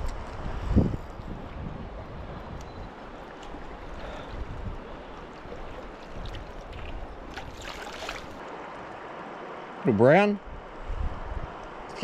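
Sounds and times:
river water running: 0.0 - 12.0
water splashes: 1.2 - 8.7.

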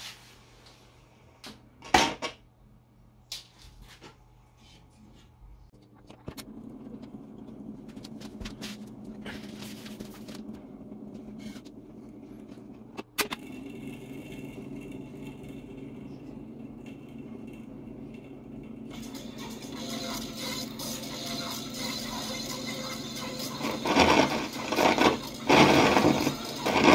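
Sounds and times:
radio-gramophone hum: 19.0 - 26.9.

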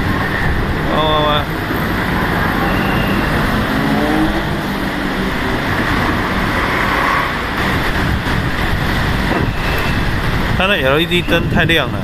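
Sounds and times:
distant fireworks rumble: 4.4 - 12.0.

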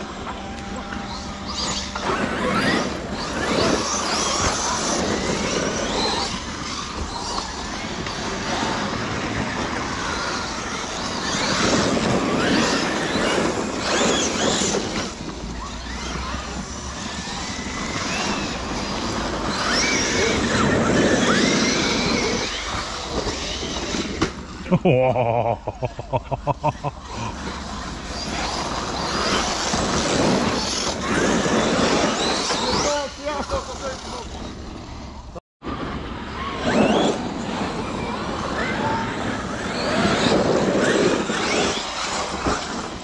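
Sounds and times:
electric motor whine: 0.0 - 24.7
tyres rushing over dirt: 26.7 - 43.0.

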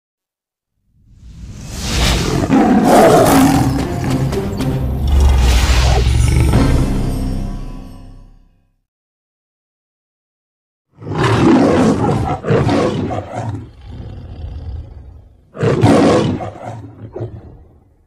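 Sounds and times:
lion growl: 2.2 - 4.3, 5.0 - 6.7, 10.9 - 18.0
lion roaring: 2.2 - 4.3, 5.0 - 6.7, 11.0 - 17.8.

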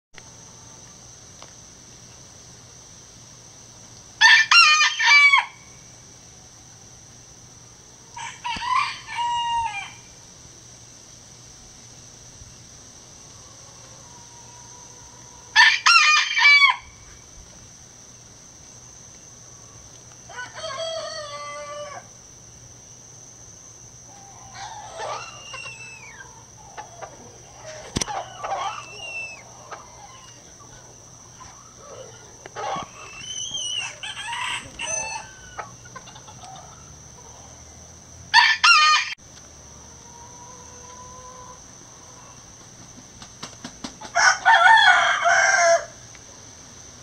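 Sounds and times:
rooster crowing: 4.2 - 5.6, 8.1 - 10.1, 13.5 - 17.0, 20.3 - 22.1, 24.3 - 30.4, 31.8 - 35.8, 38.3 - 39.2, 44.1 - 46.0
chicken clucking: 24.1 - 34.0, 34.6 - 37.4.

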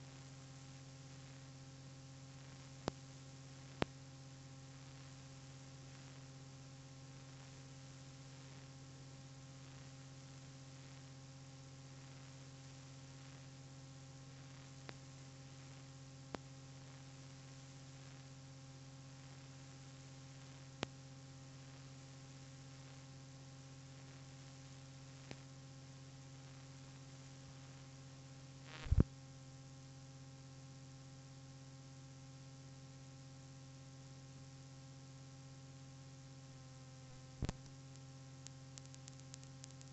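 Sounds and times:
faint electrical mains hum: 0.0 - 39.9
crackling pop: 28.7 - 29.1, 37.4 - 39.9
scattered clicks: 37.4 - 39.9.

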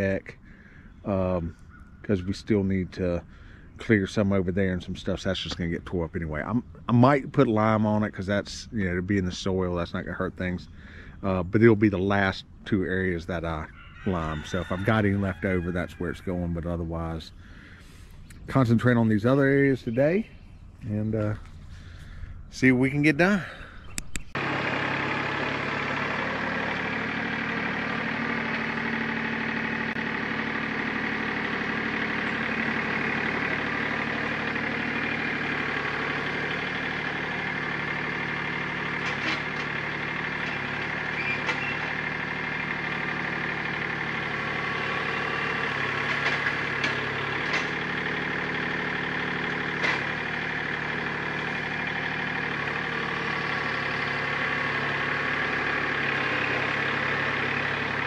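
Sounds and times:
tractor engine running: 0.0 - 58.0
short sharp clicks: 23.9 - 24.4.

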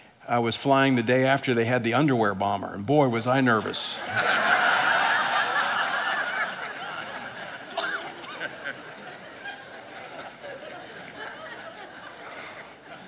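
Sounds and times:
congregation laughing: 3.5 - 13.0.

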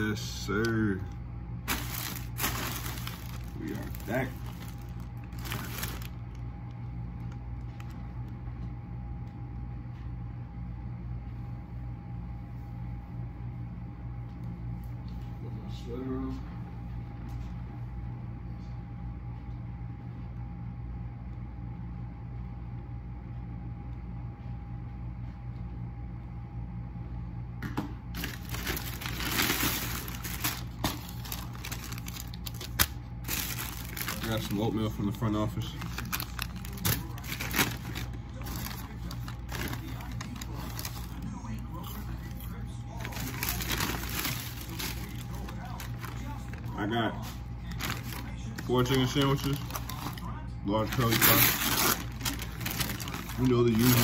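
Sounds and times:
thin steady whine: 0.0 - 27.4
low machine hum: 0.0 - 54.0
bags rustling and crinkling: 1.6 - 6.4, 28.2 - 54.0.

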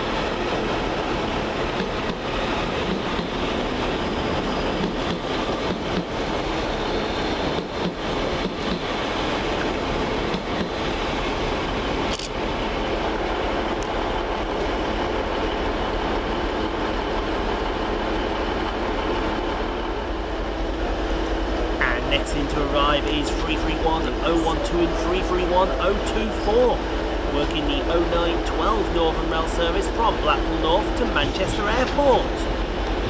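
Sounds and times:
train rumbling: 0.0 - 33.0
train wheel clicks: 7.6 - 8.9.

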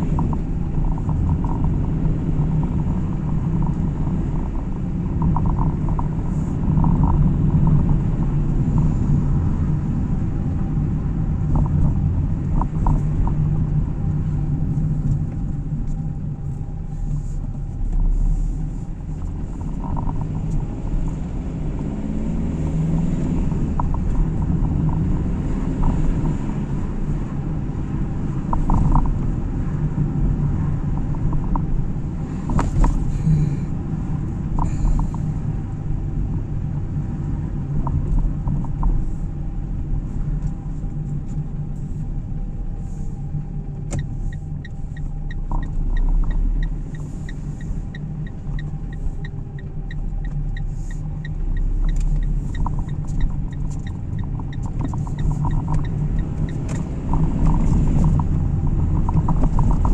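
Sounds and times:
fast regular ticking: 0.0 - 8.9, 19.2 - 20.7, 44.0 - 59.9
car engine and tyres rumbling: 0.0 - 59.9.

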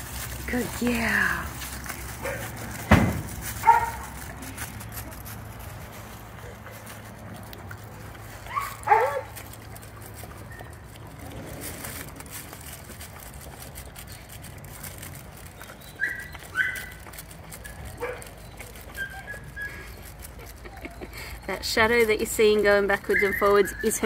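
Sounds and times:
dog whining: 15.6 - 21.7, 23.0 - 24.0.

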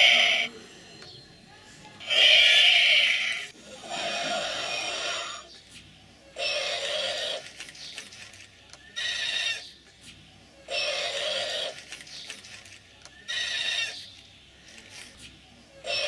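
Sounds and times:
animal-like cries: 0.0 - 0.5, 2.0 - 5.5, 6.4 - 7.4, 9.0 - 9.7, 10.7 - 11.8, 13.2 - 14.0.

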